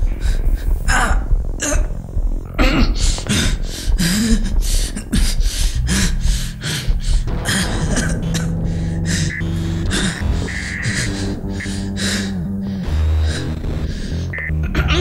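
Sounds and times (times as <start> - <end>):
steady low drone: 0.0 - 15.0
man panting: 2.9 - 14.3.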